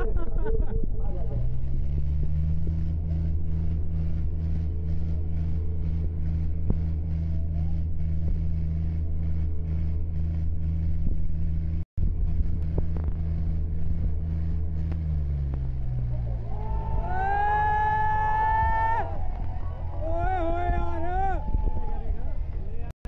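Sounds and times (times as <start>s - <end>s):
diesel tractor engines under load: 0.0s - 22.9s.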